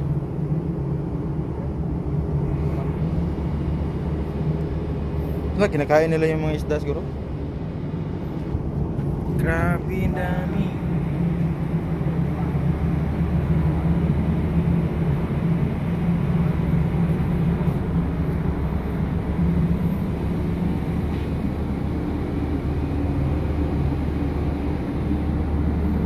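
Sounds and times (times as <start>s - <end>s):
ship machinery droning: 9.4s - 26.0s.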